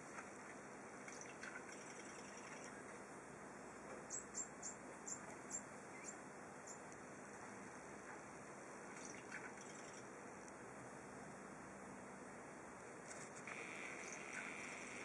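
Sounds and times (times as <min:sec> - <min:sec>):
background hiss: 0:00.0 - 0:15.0
small bird chirping: 0:01.1 - 0:02.9, 0:04.0 - 0:06.9, 0:08.9 - 0:10.1.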